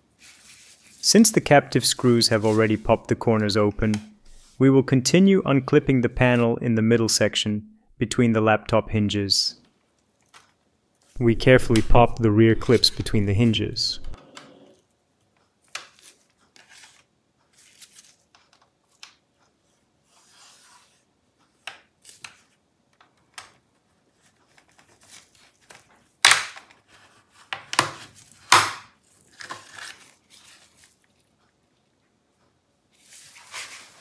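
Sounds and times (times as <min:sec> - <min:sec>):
plastic clips snapping loose: 0:26.2 - 0:26.8.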